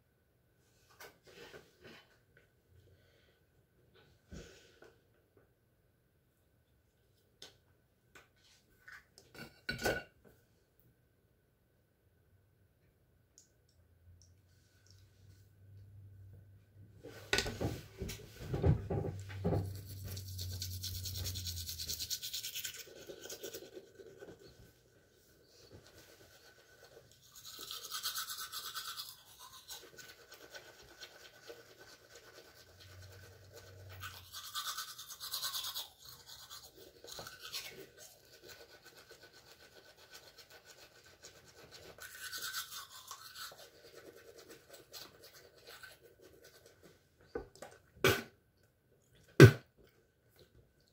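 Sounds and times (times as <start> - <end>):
toothbrush scrubbing teeth: 19.4 - 24.7, 25.5 - 47.0.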